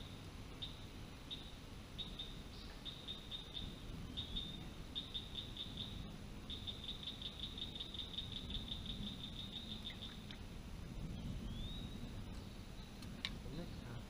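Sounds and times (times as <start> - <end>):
insect trilling: 0.0 - 10.5.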